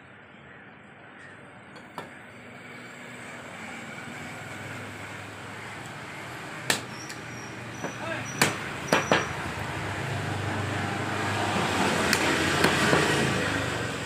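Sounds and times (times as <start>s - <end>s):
passing motor traffic rumble: 0.1s - 14.0s
cleaver chopping into wooden block: 6.7s - 7.2s, 7.8s - 9.4s, 12.1s - 13.2s.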